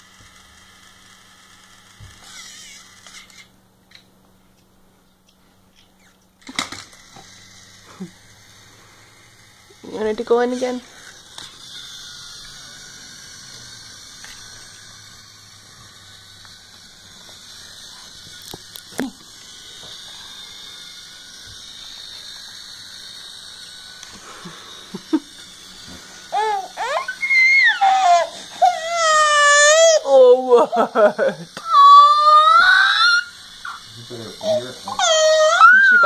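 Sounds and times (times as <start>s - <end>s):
infant crying: 26.3s - 30.5s, 31.6s - 33.8s, 34.4s - 36.0s.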